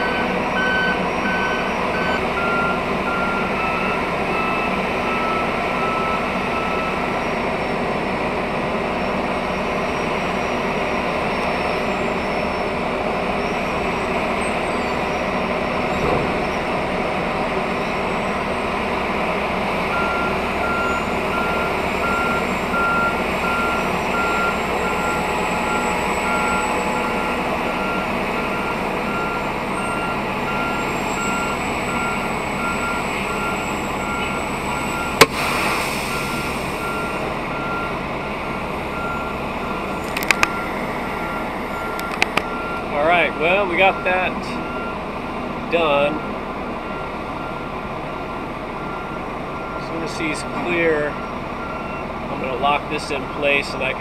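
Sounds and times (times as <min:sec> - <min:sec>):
backup alarm beeps: 0:00.0 - 0:07.8, 0:19.9 - 0:45.0, 0:48.8 - 0:52.2
diesel engine idling: 0:00.0 - 0:54.0.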